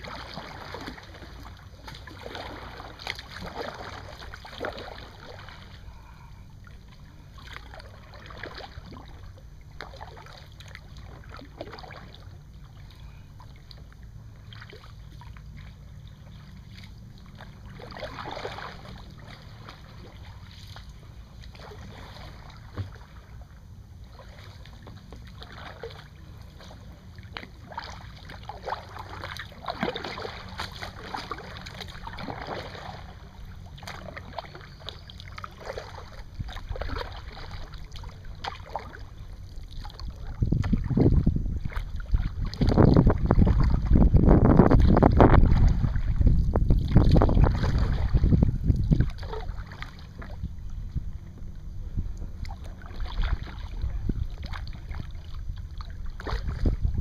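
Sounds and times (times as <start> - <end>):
paddle splashing in water: 0.0 - 50.8, 52.2 - 57.0
low rumble: 0.0 - 57.0.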